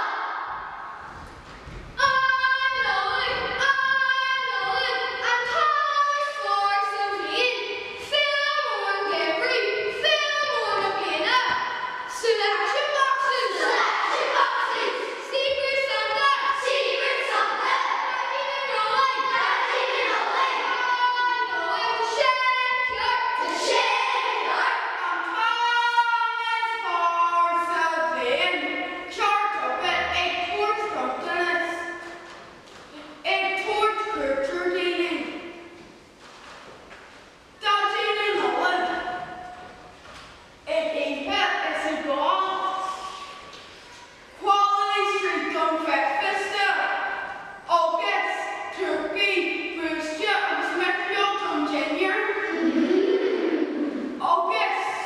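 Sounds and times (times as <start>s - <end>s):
children singing together: 16.4s - 22.2s.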